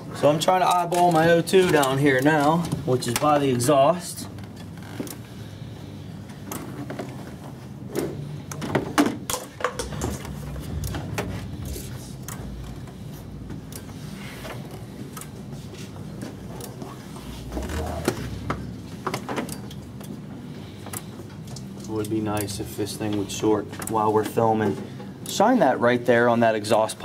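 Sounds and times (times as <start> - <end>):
knocks taps and rustles of wiring: 0.0 - 5.3, 6.3 - 25.7
low steady hum: 0.0 - 27.0.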